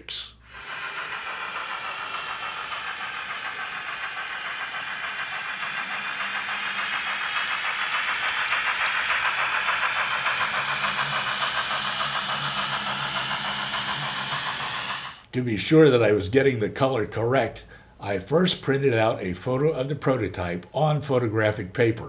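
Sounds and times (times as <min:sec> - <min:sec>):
hiss: 0:00.2 - 0:15.3
model train pulsing rhythm: 0:00.3 - 0:15.3.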